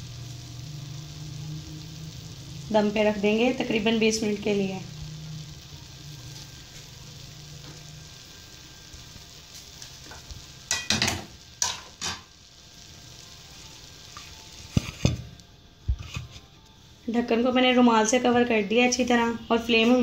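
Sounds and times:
rice sizzling in a pot: 0.0 - 20.0
kitchenware clattering: 10.7 - 12.2.

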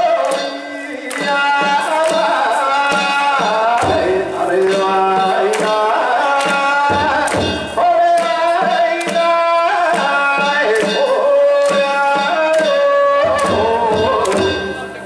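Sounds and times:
taiko drum beat: 0.3 - 15.0
hand gongs striking: 6.4 - 15.0.

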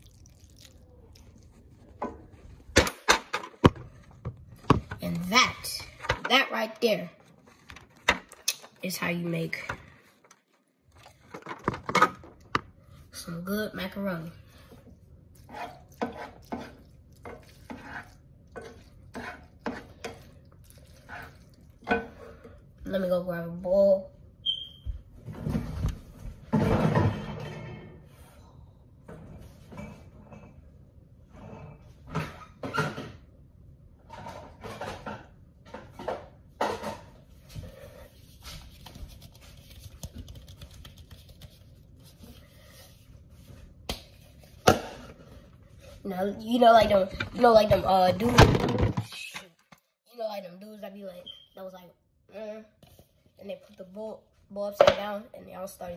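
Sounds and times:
spoon scraping metal pot: 15.4 - 22.5.

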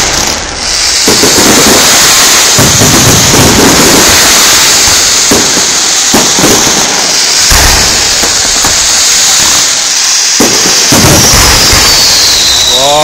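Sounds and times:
fireworks bursting: 0.0 - 13.0.

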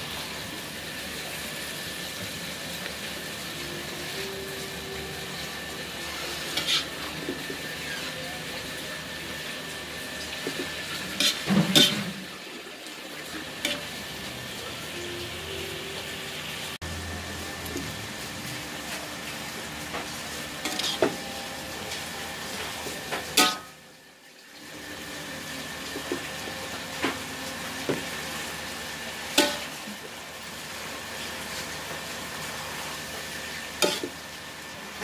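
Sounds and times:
vegetables sizzling in a wok: 0.0 - 35.0
metal spatula scraping a pan: 4.5 - 8.2, 10.5 - 12.3, 20.6 - 21.2.

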